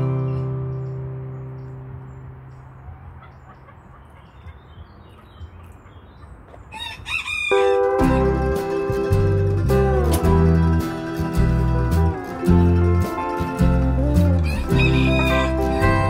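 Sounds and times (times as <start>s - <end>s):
acoustic guitar music: 0.0s - 2.8s, 7.5s - 16.0s
small birds chirping: 0.0s - 7.1s
rooster crowing: 6.7s - 8.0s, 14.4s - 16.0s.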